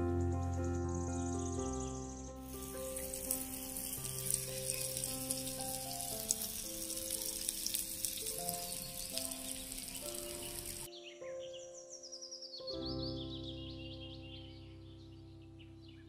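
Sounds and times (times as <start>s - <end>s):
fish sizzling in hot oil: 2.4s - 10.9s
oil popping: 2.5s - 10.9s.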